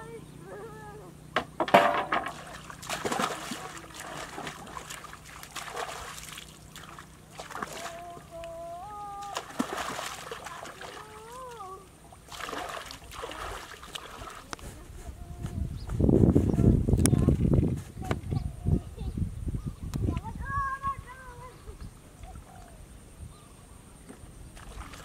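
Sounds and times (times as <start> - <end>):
splashing in shallow muddy water: 1.8 - 15.5, 24.5 - 25.0
water trickling: 2.2 - 14.6.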